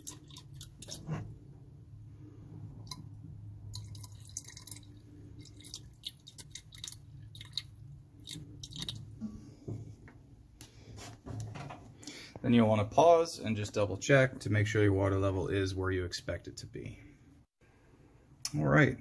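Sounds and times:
small clicks and splashes: 0:00.0 - 0:01.1, 0:03.7 - 0:09.2
water trickling: 0:00.0 - 0:01.1, 0:02.8 - 0:09.3.

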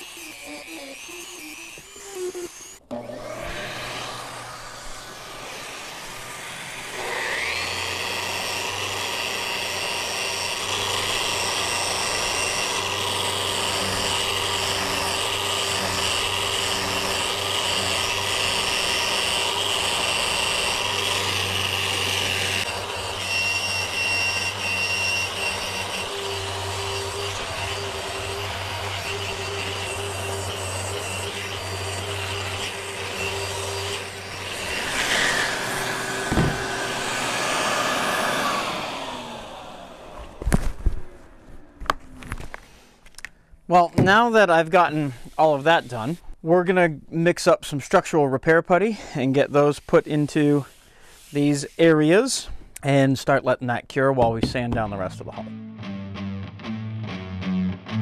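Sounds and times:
orbital sander whining: 0:00.0 - 0:42.6.

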